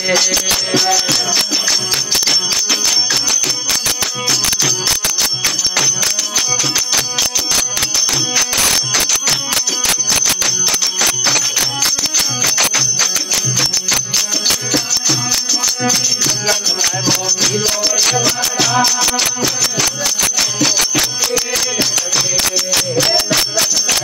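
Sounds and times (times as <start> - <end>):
voices singing: 0.0 - 4.7, 5.4 - 24.0
drum beating steady rhythm: 0.0 - 24.0
harmonium: 0.0 - 24.0
jingling hand percussion: 0.0 - 24.0.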